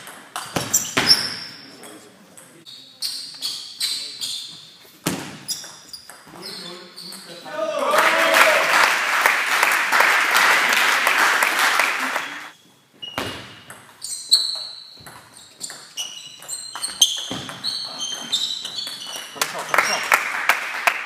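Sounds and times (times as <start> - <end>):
shoes squeaking on floor: 0.4 - 2.0, 2.6 - 7.5, 12.4 - 20.0
spectators applauding: 7.8 - 12.5, 19.4 - 21.0.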